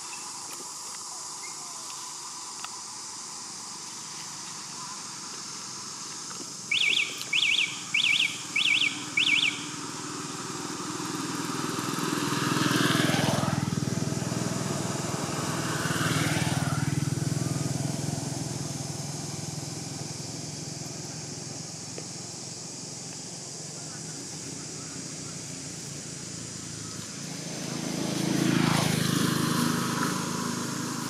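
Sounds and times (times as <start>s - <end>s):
vehicles passing by: 0.0s - 31.0s
bird chirping: 6.7s - 9.8s.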